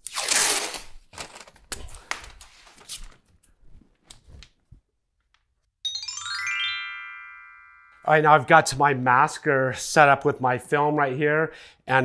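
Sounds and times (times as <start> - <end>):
masking tape ripping: 0.0 - 3.2
chiming music cue: 5.8 - 8.5.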